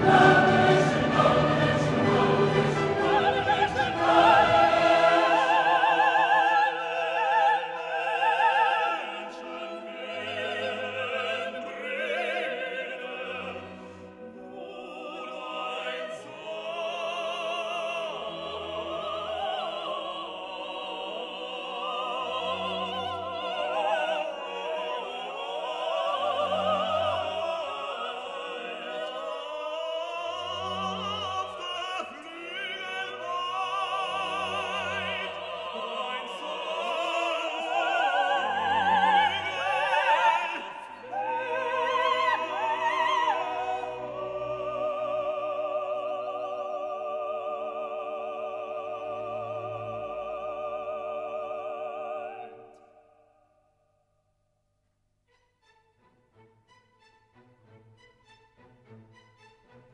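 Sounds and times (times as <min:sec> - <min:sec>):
orchestra playing: 0:00.0 - 0:16.7, 0:55.3 - 0:59.9
operatic singing: 0:00.0 - 0:53.4.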